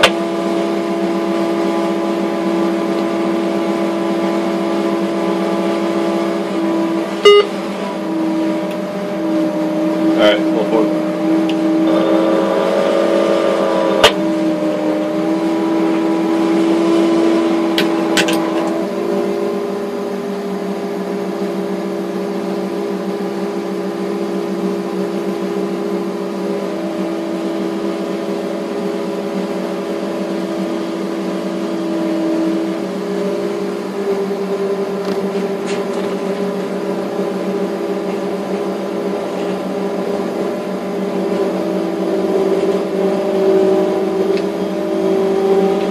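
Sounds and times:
crane engine and hydraulics droning: 0:00.0 - 0:45.9.

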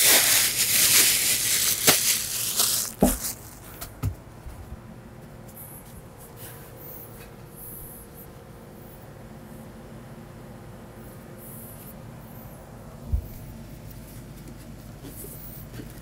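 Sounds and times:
plastic bag crinkling: 0:00.0 - 0:03.8.

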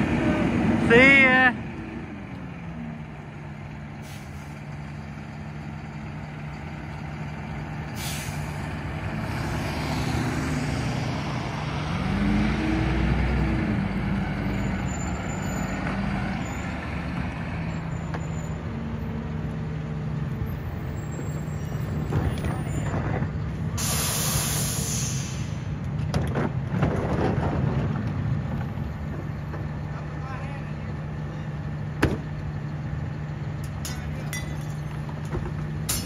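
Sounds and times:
garbage truck diesel engine running: 0:00.0 - 0:36.0
air brake hisses: 0:04.0 - 0:04.6, 0:08.0 - 0:08.6, 0:23.8 - 0:25.7.

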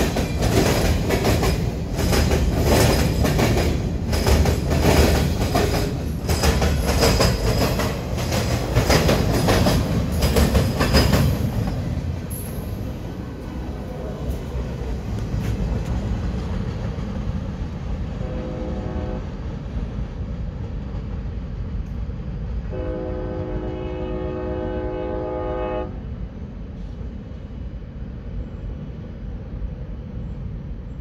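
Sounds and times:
train rumbling: 0:00.0 - 0:31.0
train horn blasts: 0:18.2 - 0:19.4, 0:22.7 - 0:26.1.

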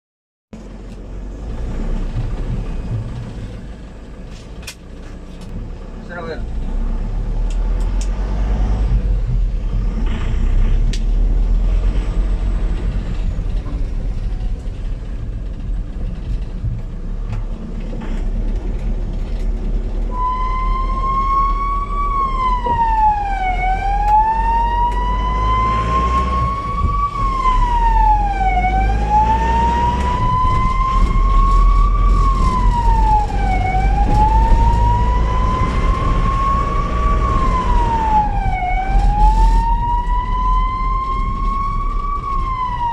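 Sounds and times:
vehicle engine and road rumble: 0:00.5 - 0:42.9
ambulance siren wailing: 0:20.0 - 0:42.9.

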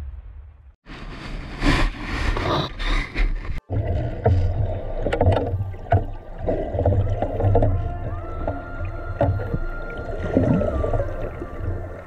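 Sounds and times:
water splashing and sloshing: 0:00.9 - 0:12.0
underwater bubbling: 0:03.6 - 0:12.0.

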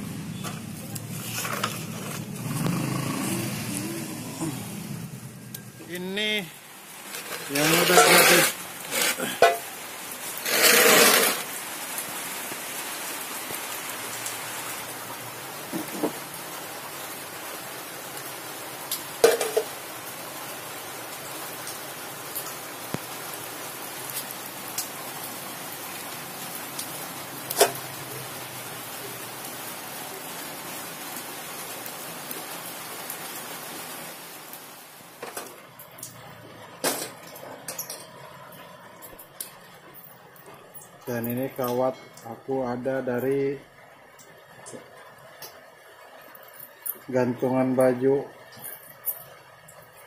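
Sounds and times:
steady hiss: 0:00.2 - 0:23.6.

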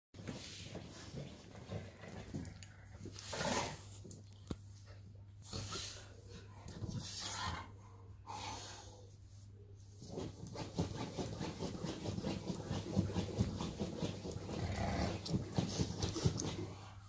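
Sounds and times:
dog claws scratching cushion: 0:10.0 - 0:16.8.

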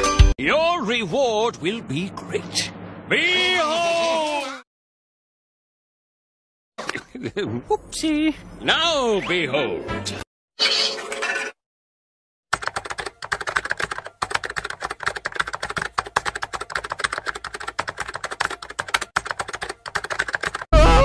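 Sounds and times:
typing on computer keyboard: 0:12.5 - 0:20.7.

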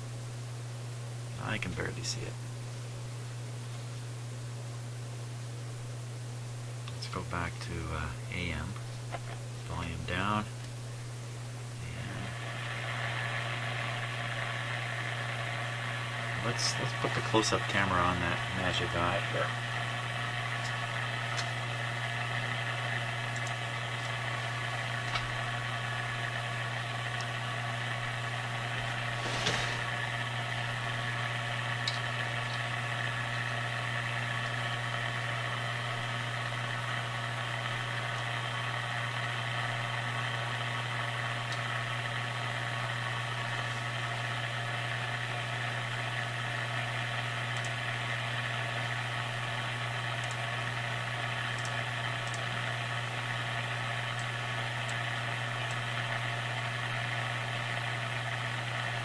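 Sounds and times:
radio speaker hum: 0:01.3 - 0:02.9, 0:06.8 - 0:38.3
click: 0:23.3 - 0:24.2, 0:31.8 - 0:32.6, 0:47.5 - 0:47.8, 0:50.2 - 0:50.4, 0:51.5 - 0:52.4, 0:54.1 - 0:55.0
hiss: 0:29.1 - 0:30.0.

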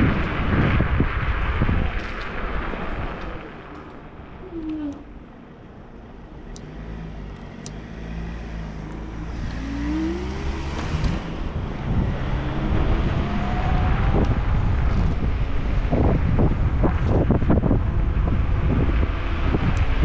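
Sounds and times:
road and wind noise: 0:00.0 - 0:20.0
vehicle engine hum: 0:00.0 - 0:20.0.

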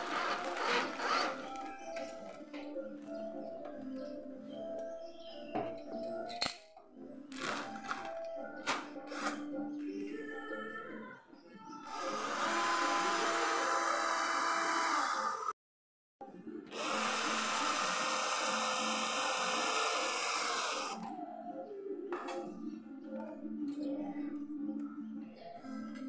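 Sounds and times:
cordless drill drilling metal: 0:00.0 - 0:01.7, 0:11.9 - 0:15.5, 0:16.7 - 0:21.0.

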